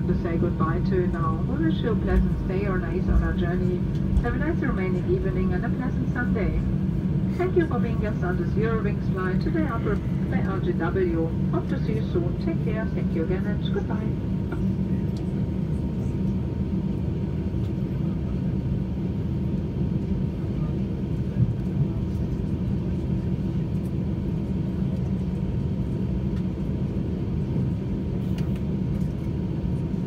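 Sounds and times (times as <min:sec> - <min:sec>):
airliner cabin rumble: 0:00.0 - 0:30.0.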